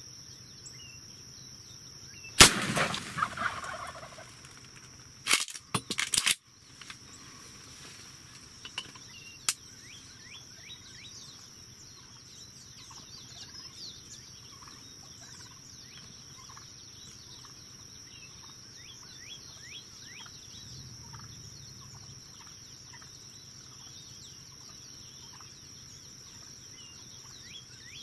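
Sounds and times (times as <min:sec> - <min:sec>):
small birds chirping: 0:00.0 - 0:02.4, 0:03.2 - 0:05.0, 0:06.6 - 0:28.0
high insect drone: 0:00.0 - 0:28.0
turkeys gobbling: 0:02.4 - 0:04.6.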